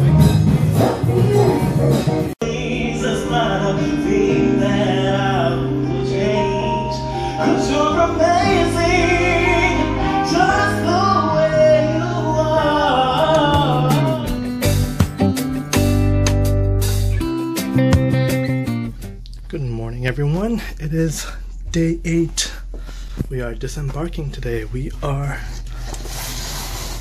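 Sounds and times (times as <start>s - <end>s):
song with singing voice: 0.0s - 15.4s
held bass line: 0.0s - 25.8s.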